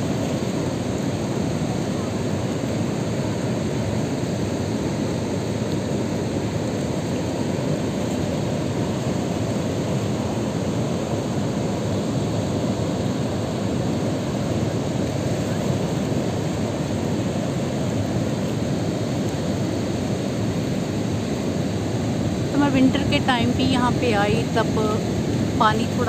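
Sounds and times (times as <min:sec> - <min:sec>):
water rushing over spillway: 0:00.0 - 0:26.0.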